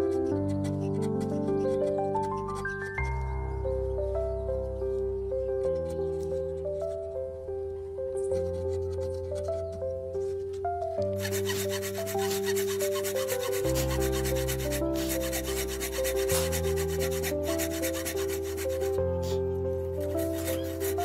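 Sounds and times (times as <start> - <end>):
hand saw cutting wood: 0.0 - 3.2, 8.4 - 9.8, 11.0 - 21.0.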